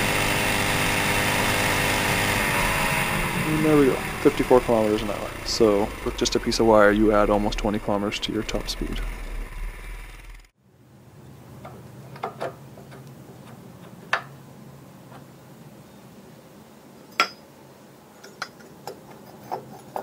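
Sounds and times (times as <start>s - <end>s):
low steady hum: 3.0s - 13.8s.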